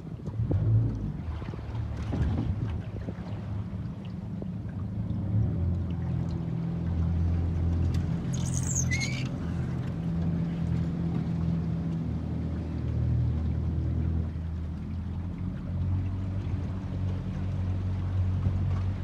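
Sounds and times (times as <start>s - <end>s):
boat motor humming: 0.0s - 19.0s
bird squawk: 8.4s - 9.3s.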